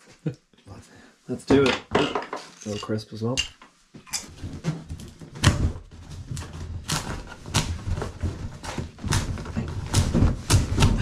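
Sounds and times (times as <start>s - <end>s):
handling knocks and scrapes: 1.4s - 11.0s.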